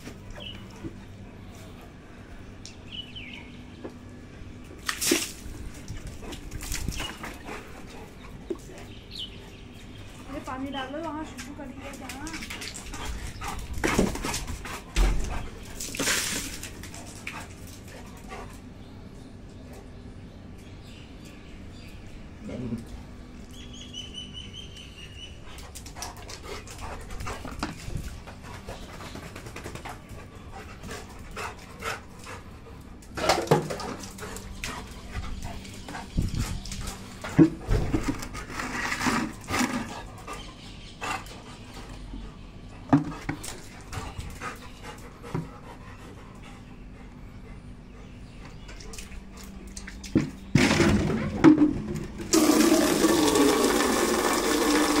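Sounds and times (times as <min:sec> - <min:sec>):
dog lapping water: 0:04.9 - 0:10.4.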